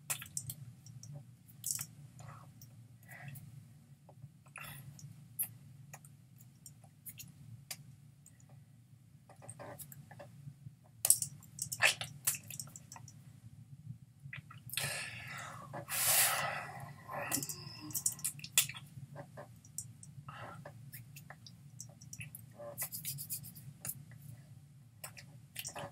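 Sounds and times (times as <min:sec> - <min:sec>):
steady low hum: 0:00.0 - 0:25.9.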